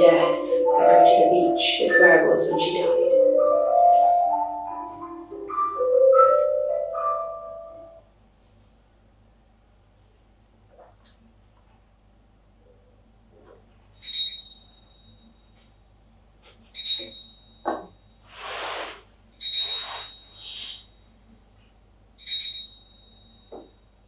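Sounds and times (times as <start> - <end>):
soft hissing sounds: 18.2 - 19.1, 19.7 - 20.9
small bell struck: 22.2 - 24.0.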